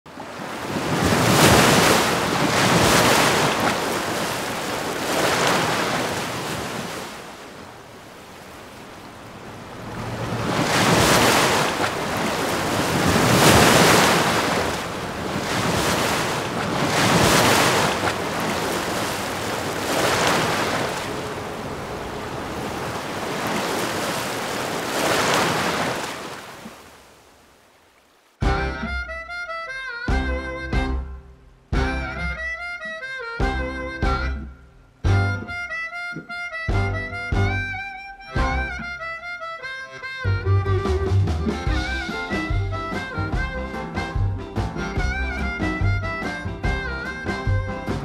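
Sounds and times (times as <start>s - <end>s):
water surging and breaking: 0.1s - 28.4s.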